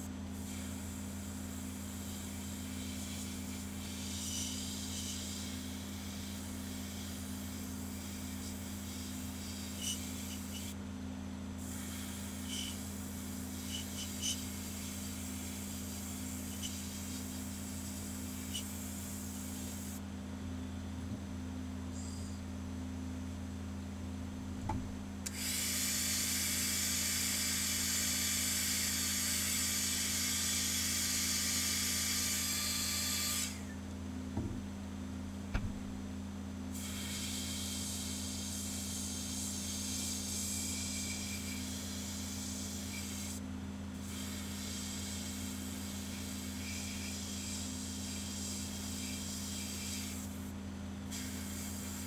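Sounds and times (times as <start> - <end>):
steady low hum: 0.0 - 31.1, 33.2 - 50.5
light knocks: 34.4 - 34.7
airbrush spraying hiss: 36.8 - 43.4, 44.0 - 50.5.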